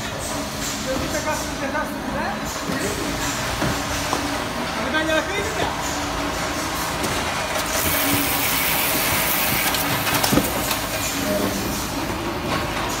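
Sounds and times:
boxes clattering on roller conveyor: 0.0 - 13.0
packing machinery hissing: 7.5 - 12.2.

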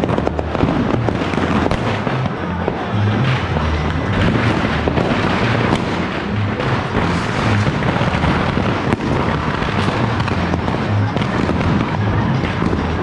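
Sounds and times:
firecrackers crackling and popping: 0.0 - 13.0
music with bass line: 0.0 - 13.0.

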